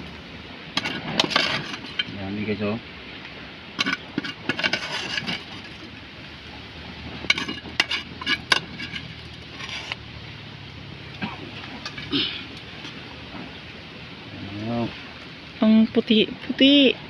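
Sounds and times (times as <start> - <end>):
metal ladle clinking on pots: 3.8 - 5.8, 7.3 - 10.0, 11.2 - 13.0.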